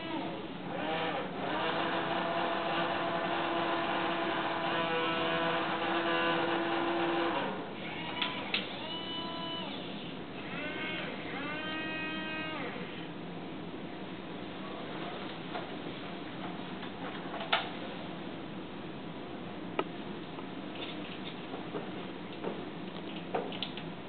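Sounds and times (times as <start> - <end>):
servo motors whining: 0.0 - 13.0.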